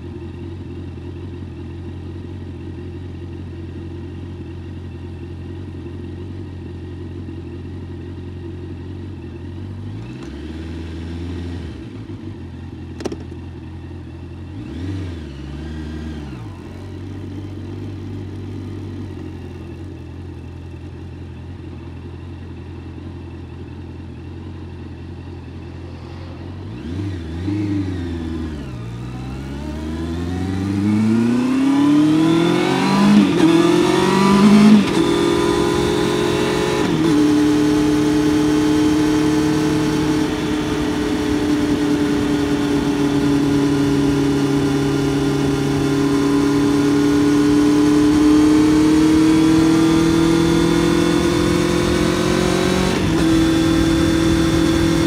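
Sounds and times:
motorcycle engine revving and shifting: 9.6s - 13.6s, 14.3s - 20.7s, 24.3s - 55.0s.

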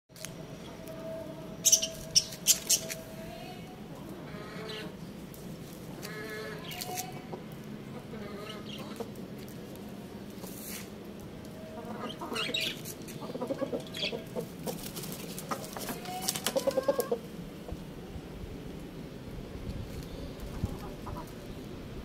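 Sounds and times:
rooster calling: 15.8s - 17.3s.

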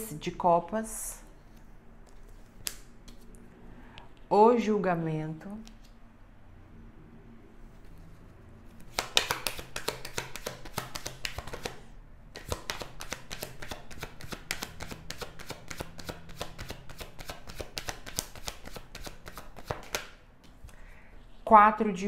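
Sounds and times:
cards being shuffled: 1.4s - 3.4s, 7.6s - 20.8s.

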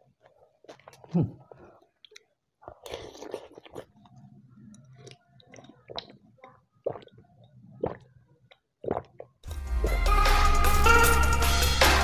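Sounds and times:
person chewing and slurping soup: 0.0s - 9.4s
gulps: 0.7s - 1.9s, 2.6s - 9.4s.

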